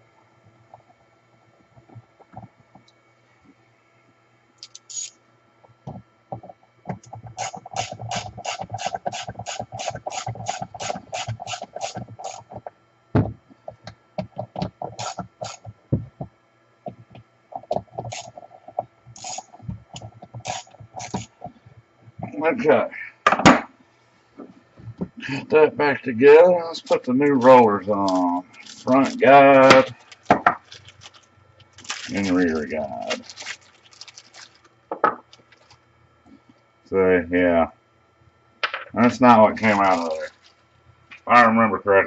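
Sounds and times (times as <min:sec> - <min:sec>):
ratchet tool clicking: 0:04.6 - 0:05.1, 0:07.4 - 0:12.4, 0:15.0 - 0:15.6, 0:19.2 - 0:19.4, 0:20.4 - 0:21.3.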